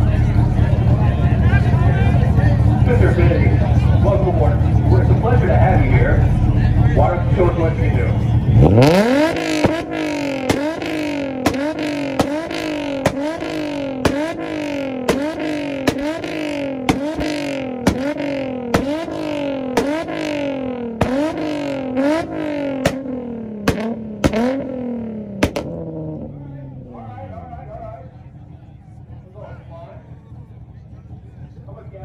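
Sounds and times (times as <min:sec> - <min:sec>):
car engine revving: 0:00.0 - 0:32.0
engine pops and bangs: 0:09.2 - 0:24.7, 0:25.3 - 0:26.2.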